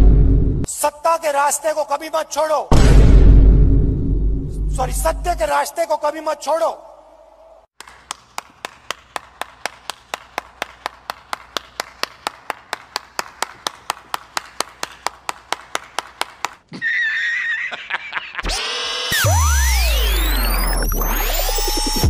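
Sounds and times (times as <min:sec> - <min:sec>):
person clapping: 0:07.8 - 0:16.7
sweeping electronic tones over bass: 0:19.2 - 0:22.0.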